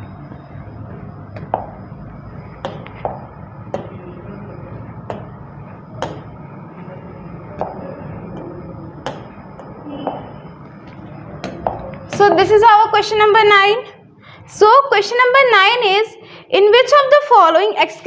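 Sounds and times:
low room hum: 0:00.0 - 0:18.0
pen tapping on glass screen: 0:01.0 - 0:01.8, 0:02.6 - 0:04.0, 0:05.0 - 0:06.4, 0:07.6 - 0:10.3, 0:10.9 - 0:12.2.

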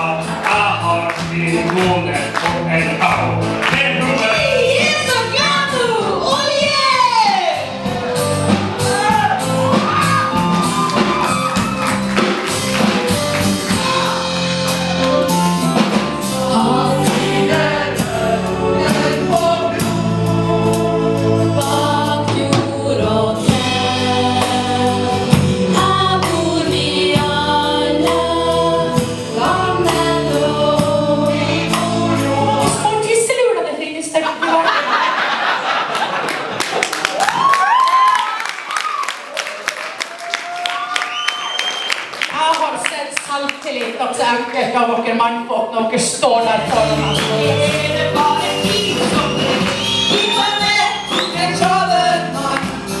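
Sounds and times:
musical backing: 0:00.0 - 0:34.2, 0:35.4 - 0:53.0
group of singers singing: 0:15.0 - 0:33.2, 0:46.6 - 0:53.0.

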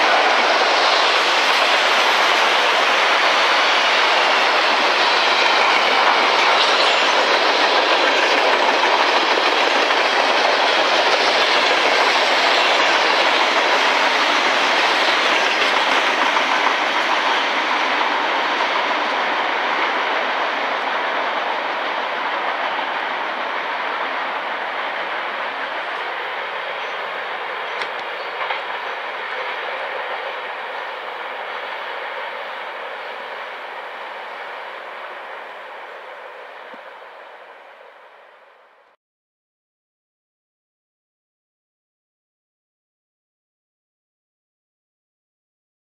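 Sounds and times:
train wheels on rail: 0:00.0 - 0:39.0
wheels clicking over rail joints: 0:27.4 - 0:28.8.

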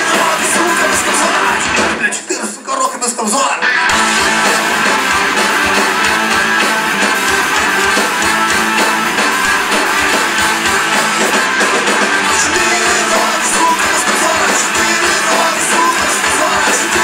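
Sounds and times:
rock band playing live: 0:00.0 - 0:02.4, 0:03.3 - 0:17.0
trumpet playing: 0:03.9 - 0:17.0.

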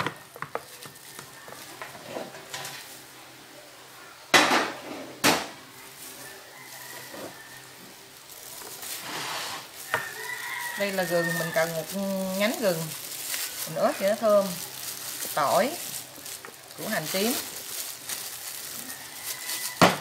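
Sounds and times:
chicken pieces knocking in plastic basin: 0:19.5 - 0:20.0.

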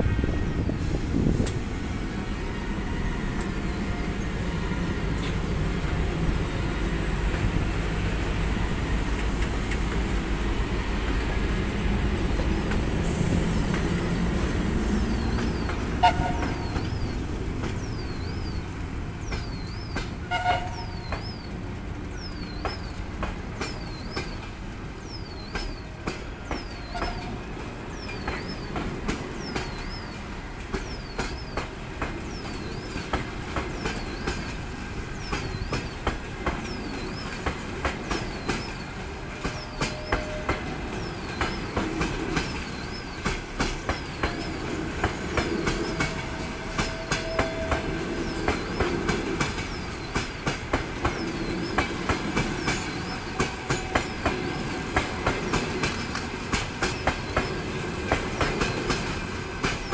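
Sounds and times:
electric locomotive rumbling: 0:00.0 - 0:59.9
train wheels clicking over rail joints: 0:00.7 - 0:59.9
short train horn toots: 0:16.0 - 0:16.8, 0:20.3 - 0:21.1, 0:26.9 - 0:27.4, 0:39.6 - 0:40.8.

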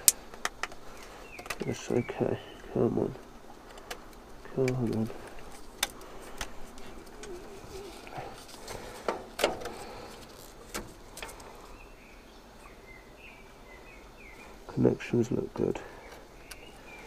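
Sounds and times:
clicks of handled connectors: 0:00.0 - 0:01.7, 0:02.6 - 0:07.4.

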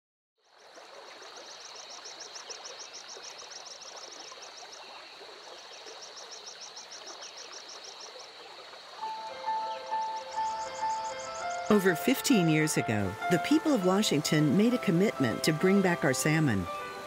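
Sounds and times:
river water rushing: 0:08.7 - 0:17.0
fast high chirping: 0:09.1 - 0:11.8.

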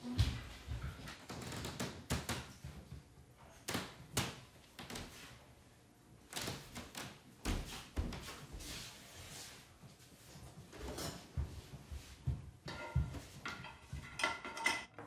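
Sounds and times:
household thumps and clacks: 0:10.7 - 0:15.0.

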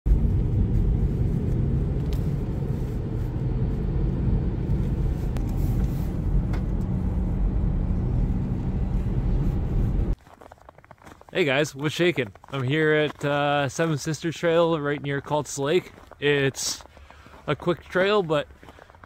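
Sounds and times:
car driving on wet road: 0:00.1 - 0:10.2.

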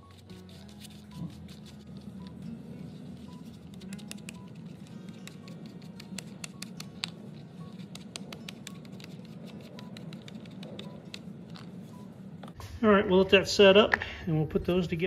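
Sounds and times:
glue brush clicking and scratching: 0:00.0 - 0:02.1, 0:03.2 - 0:11.7
quiet background music: 0:00.0 - 0:15.0.

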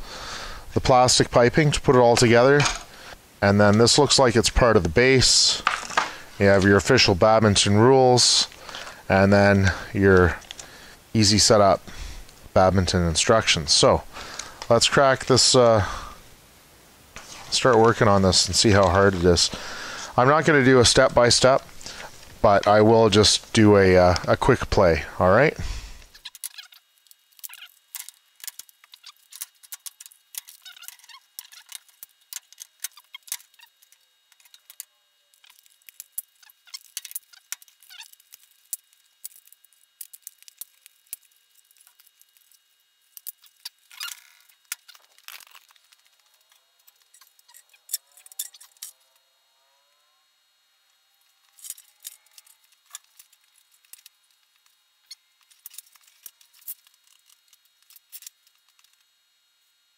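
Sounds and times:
plastic parts clicking and rattling: 0:26.1 - 0:49.0, 0:51.4 - 0:59.0
plastic squeaks: 0:26.1 - 0:49.0, 0:51.4 - 0:59.0.

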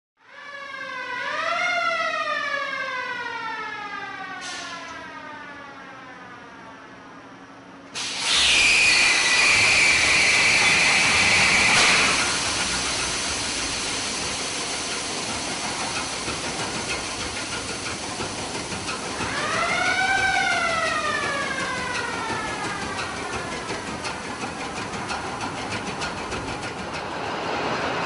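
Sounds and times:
loud blast of air hiss: 0:04.4 - 0:04.8, 0:08.0 - 0:21.5
diesel engine running: 0:09.0 - 0:28.0
rising and falling tone: 0:19.2 - 0:23.9.

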